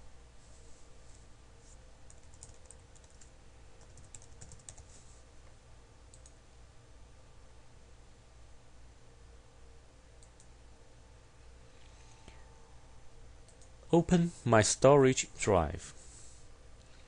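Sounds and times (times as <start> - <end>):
low steady hum: 0.0 - 17.0
computer keyboard typing: 2.1 - 4.9, 6.1 - 6.4.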